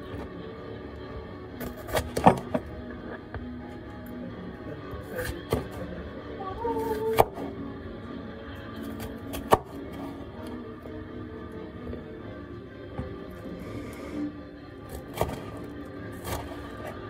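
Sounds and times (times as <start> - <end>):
background music: 0.0 - 17.0.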